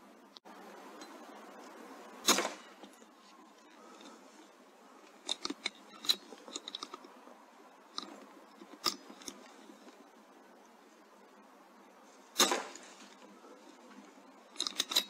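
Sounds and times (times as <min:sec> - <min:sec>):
low hiss: 0:00.0 - 0:15.0
metallic clicks and clacks: 0:05.2 - 0:07.2, 0:07.9 - 0:09.6, 0:14.5 - 0:15.0.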